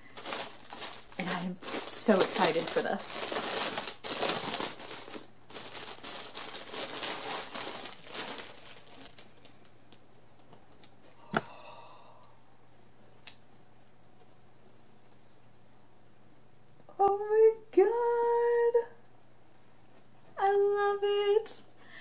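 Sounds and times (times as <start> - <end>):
packaging crinkling and tearing: 0.0 - 11.0.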